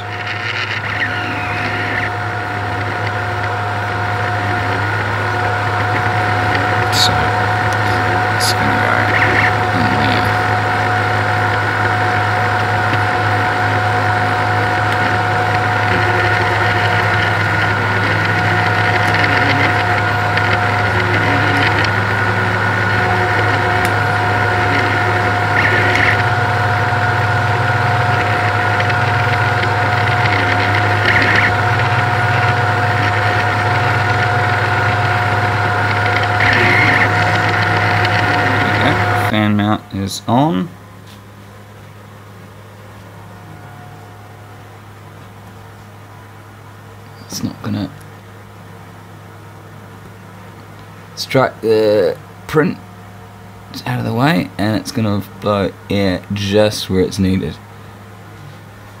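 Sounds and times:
stepper motors changing pitch: 0.0s - 40.8s
printer hum and fan whine: 0.0s - 59.0s.

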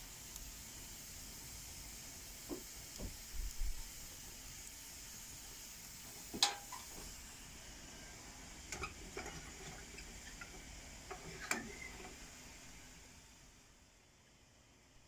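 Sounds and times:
wood fire crackling: 0.0s - 13.8s
stove door clicks: 6.4s - 6.9s.

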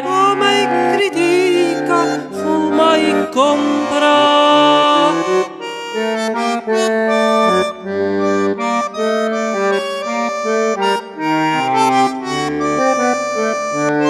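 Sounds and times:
solo bandoneon melody: 0.0s - 14.0s.

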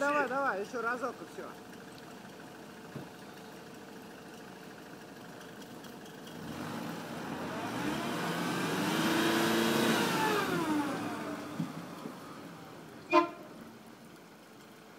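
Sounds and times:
pickup engine revving under load: 6.3s - 13.8s.

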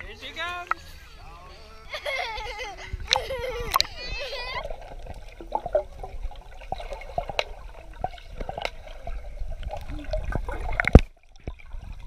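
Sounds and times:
muffled underwater gurgling: 2.8s - 12.0s
underwater clicks: 3.0s - 4.0s, 6.7s - 11.7s.

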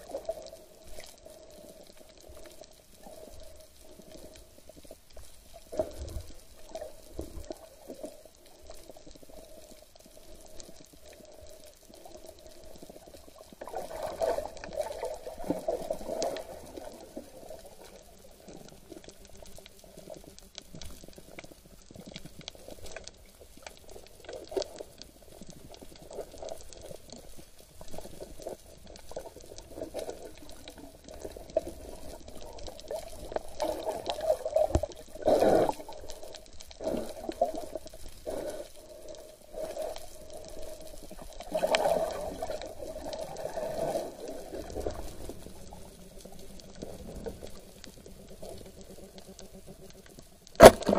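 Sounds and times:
water sloshing and bubbling: 0.0s - 50.9s
underwater clicks: 44.6s - 50.9s.

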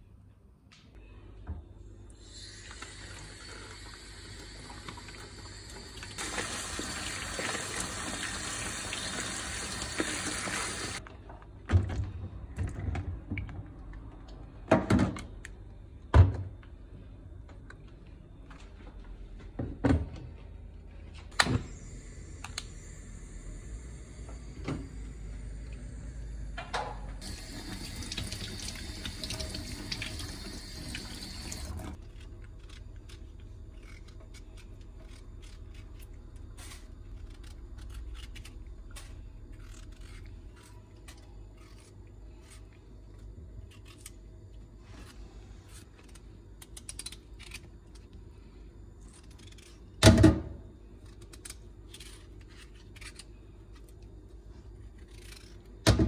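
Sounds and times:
potatoes peeled by hand: 27.2s - 50.2s, 50.9s - 56.0s.

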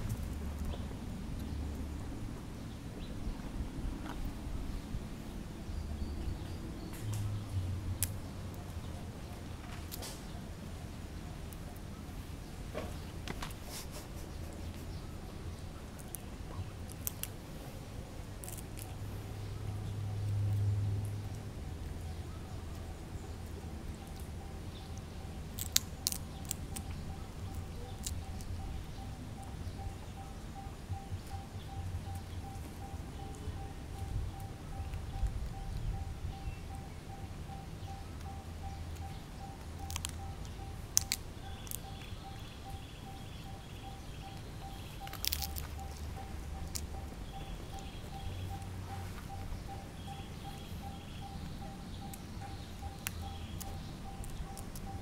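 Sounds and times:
low background hum: 0.0s - 55.0s
low wind rumble: 0.0s - 55.0s
sharp clicks: 24.0s - 55.0s
faint pulsing high tone: 26.9s - 55.0s.

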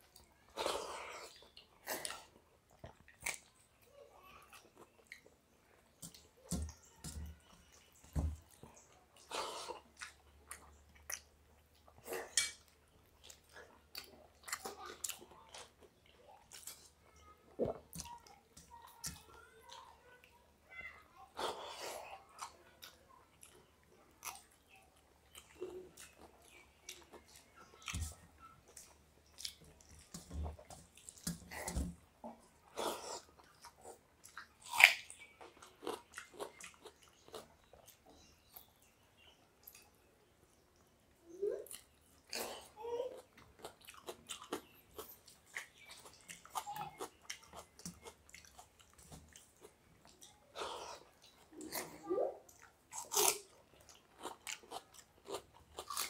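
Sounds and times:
chewing and lip smacks: 7.7s - 17.0s, 43.2s - 56.0s.

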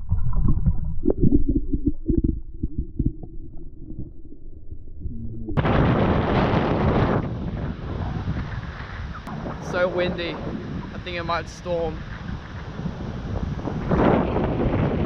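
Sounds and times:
wind buffeting microphone: 5.5s - 15.0s.

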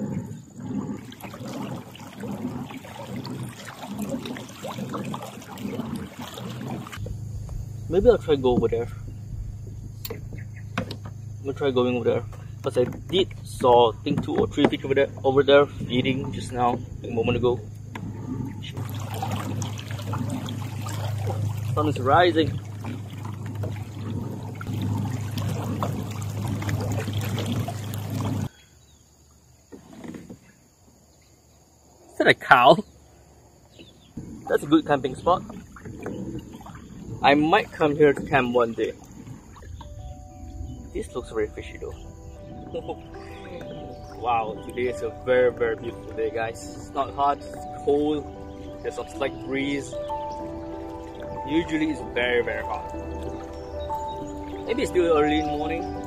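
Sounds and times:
low churning of pedal drive: 0.0s - 28.5s
steady low hum: 0.0s - 28.5s
water gurgling along hull: 0.0s - 31.1s, 31.8s - 56.0s.

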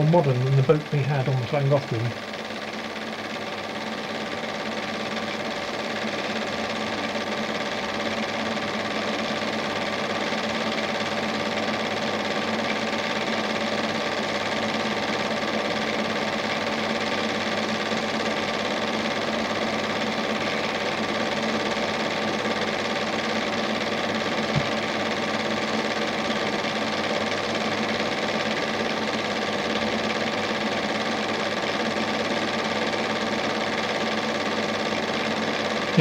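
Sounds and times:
projector motor whirring: 0.0s - 36.0s
small mechanical knock: 24.5s - 24.8s.

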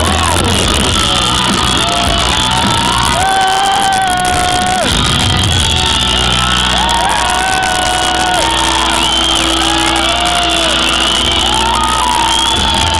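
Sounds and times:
crowd shouting and whooping: 0.0s - 12.9s.

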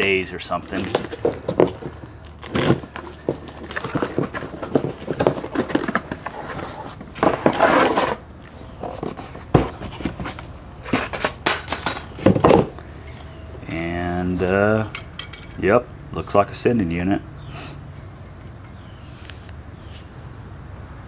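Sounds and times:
cardboard scraping and crackling: 0.5s - 11.4s
cardboard box being torn open: 0.6s - 8.2s.

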